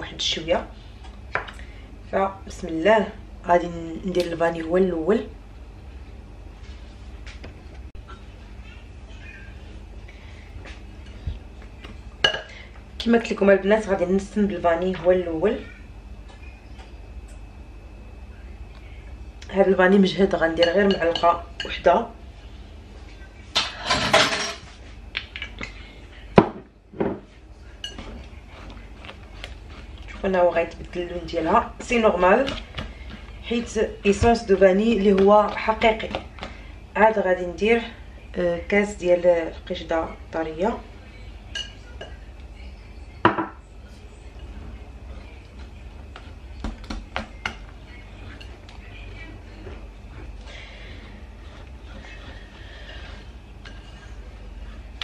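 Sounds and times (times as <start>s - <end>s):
utensils clinking on ceramic bowl: 20.5s - 21.8s, 23.6s - 24.7s, 27.8s - 28.3s, 41.5s - 42.2s
whisk clinking against bowl: 41.5s - 42.2s.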